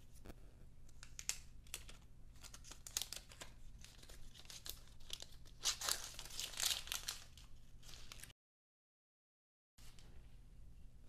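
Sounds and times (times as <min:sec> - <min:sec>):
plastic film crackling and tearing: 0:01.0 - 0:08.3.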